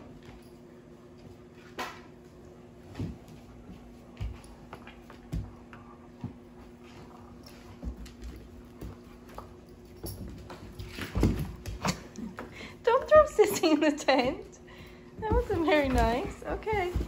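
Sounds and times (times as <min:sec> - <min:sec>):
faint steady hum: 0:00.0 - 0:17.0
dog paws clicking on wood floor: 0:02.9 - 0:14.5, 0:15.1 - 0:17.0.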